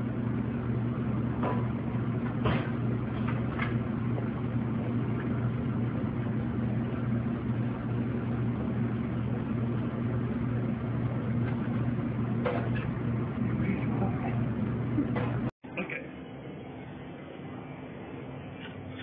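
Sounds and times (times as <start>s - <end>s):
kitchen equipment hum: 0.0s - 19.0s.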